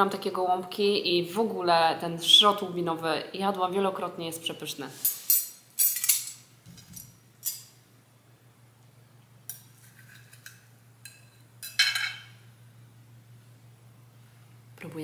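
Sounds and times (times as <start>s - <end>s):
cutlery clinking on plate: 5.1s - 7.7s, 9.5s - 12.4s
faint low hum: 5.9s - 15.0s.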